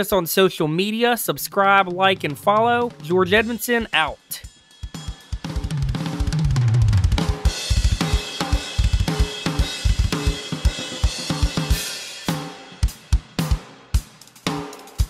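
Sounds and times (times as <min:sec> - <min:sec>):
cymbals ringing: 0:02.9 - 0:06.2
bass drum strokes: 0:05.0 - 0:08.2.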